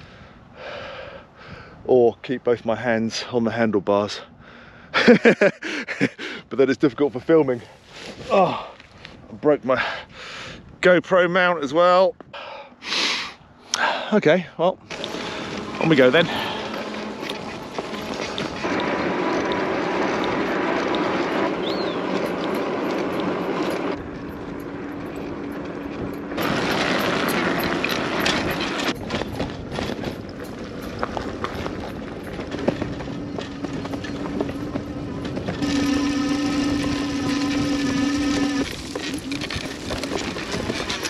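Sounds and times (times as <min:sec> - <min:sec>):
bike tyre rumble: 0:14.8 - 0:41.0
electric motor whine: 0:14.9 - 0:29.0, 0:32.6 - 0:41.0.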